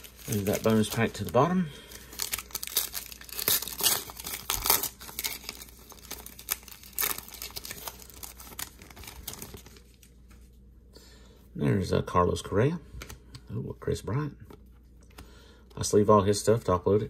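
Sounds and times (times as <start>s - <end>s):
foil wrapper tearing and crinkling: 0.0s - 10.1s.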